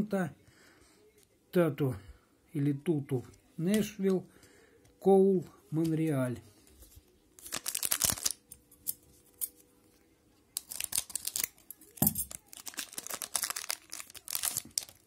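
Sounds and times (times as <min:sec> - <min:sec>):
foil wrapper crinkling: 0:07.4 - 0:09.6, 0:10.6 - 0:15.0.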